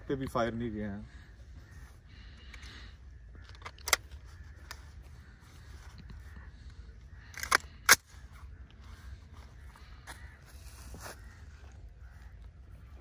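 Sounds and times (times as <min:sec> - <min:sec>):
metallic rifle clicks: 0:03.3 - 0:04.9, 0:07.2 - 0:08.1.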